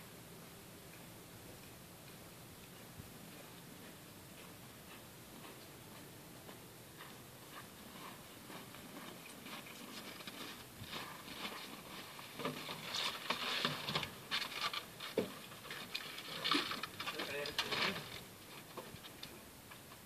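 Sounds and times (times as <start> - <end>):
footsteps crunching on snow: 4.4 - 15.6.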